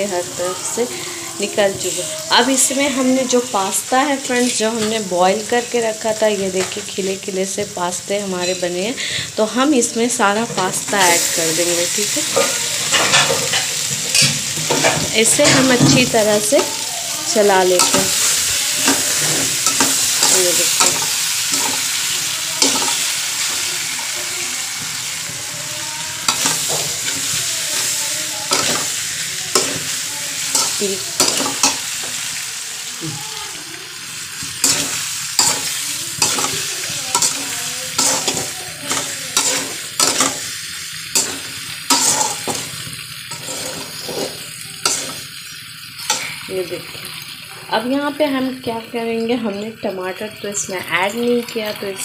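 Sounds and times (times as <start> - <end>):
food sizzling in oil: 0.0 - 52.0
spatula scraping a pan: 12.1 - 17.2, 17.8 - 24.4, 25.3 - 32.2, 34.6 - 46.5.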